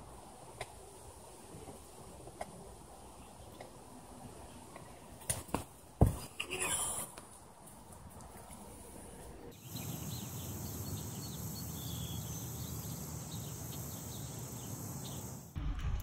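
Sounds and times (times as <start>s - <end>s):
small birds chirping: 9.5s - 15.6s
high hiss: 9.6s - 15.6s
low rumble: 15.6s - 16.0s.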